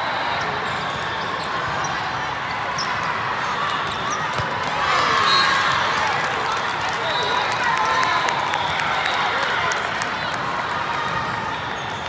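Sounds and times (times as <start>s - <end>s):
ball bounces: 4.3s - 4.7s.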